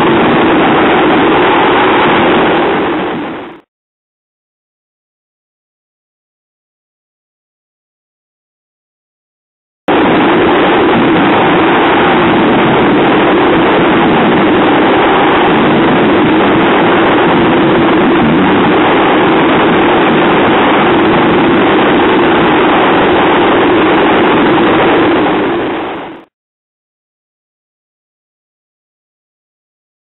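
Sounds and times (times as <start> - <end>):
heavy wind: 0.0 - 3.7, 9.9 - 26.3
outboard engines running: 9.9 - 26.3.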